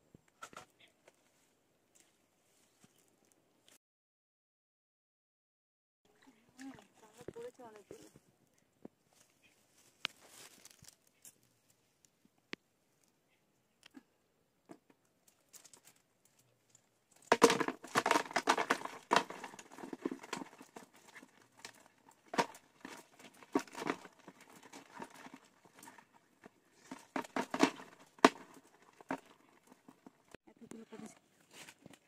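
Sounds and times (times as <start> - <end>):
crabs clattering into bucket: 17.2 - 30.2.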